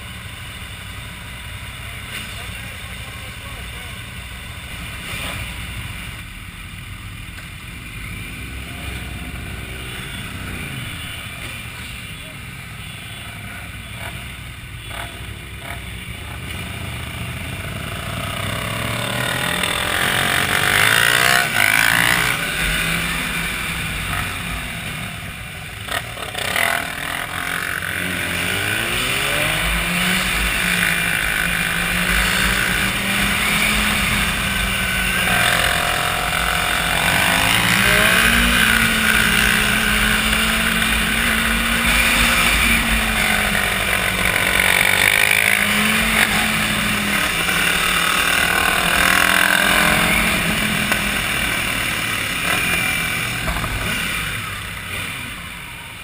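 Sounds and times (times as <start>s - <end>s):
motorcycle engine accelerating: 0.0s - 56.0s.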